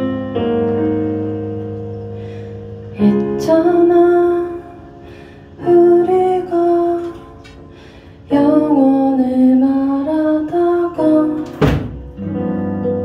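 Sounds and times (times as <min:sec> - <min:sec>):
digital piano: 0:00.0 - 0:13.0
woman singing: 0:03.0 - 0:05.0, 0:05.6 - 0:07.6, 0:08.3 - 0:11.9.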